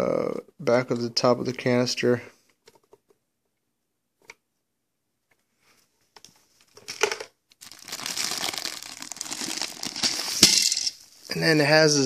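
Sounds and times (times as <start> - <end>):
plastic wrapping crinkling: 6.6 - 11.4.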